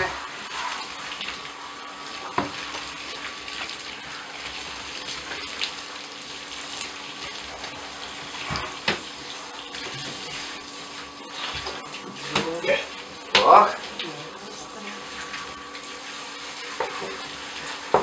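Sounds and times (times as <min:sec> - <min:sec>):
shower spraying water: 0:00.0 - 0:18.0.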